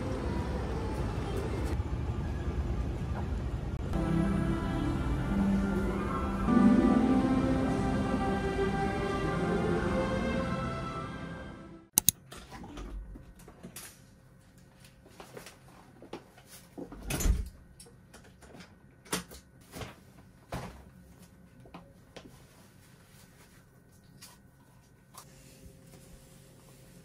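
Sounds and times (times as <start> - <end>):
sharp clicks: 12.0 - 12.2.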